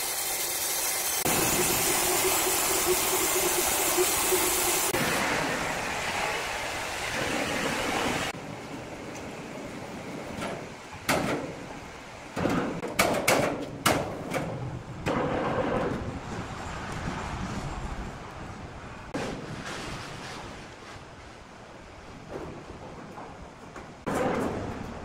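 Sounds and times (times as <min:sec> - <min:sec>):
band saw running: 0:00.0 - 0:05.2.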